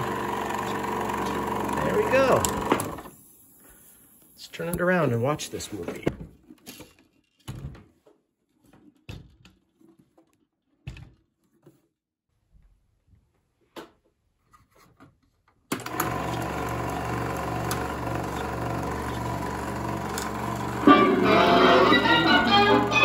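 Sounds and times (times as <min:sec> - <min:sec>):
film projector running: 0:00.0 - 0:03.1, 0:15.7 - 0:23.0.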